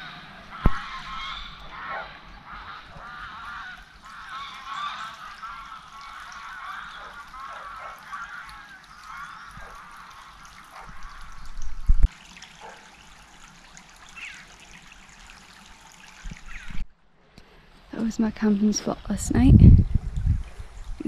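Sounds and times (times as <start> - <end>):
waterfowl honking chorus: 0.0 - 11.6
river trickling: 0.0 - 19.2, 20.1 - 21.0
low rumble on microphone: 10.9 - 12.1, 19.0 - 21.0.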